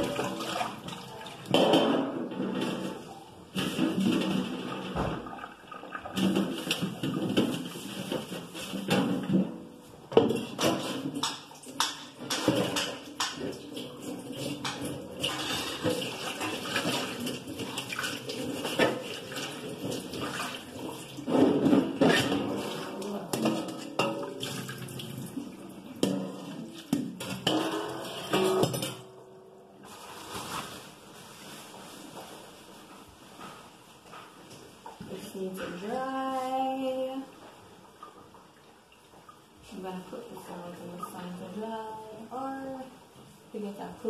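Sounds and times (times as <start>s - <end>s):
water running into kitchen sink: 0.0s - 3.0s, 3.6s - 9.4s, 10.2s - 29.2s
dishes knocking and clattering: 0.0s - 20.5s, 21.2s - 25.0s, 25.9s - 29.3s.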